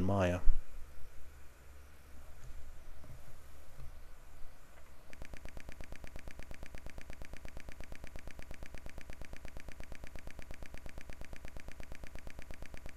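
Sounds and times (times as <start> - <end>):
pulsing electrical buzz: 5.0 - 12.9.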